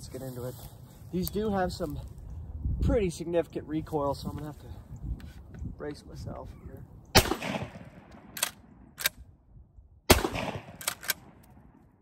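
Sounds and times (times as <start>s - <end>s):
shotgun blasts: 7.1s - 9.1s, 10.1s - 11.8s
shotgun pump racking clacks: 10.8s - 11.2s.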